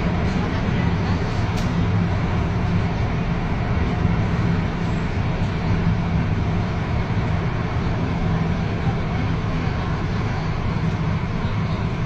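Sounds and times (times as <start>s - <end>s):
train rolling rumble: 0.0s - 12.0s.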